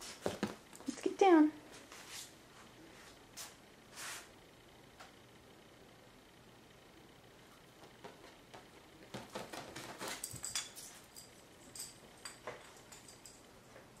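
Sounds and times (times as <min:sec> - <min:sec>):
dog claws tapping on hard floor: 0:08.0 - 0:13.4.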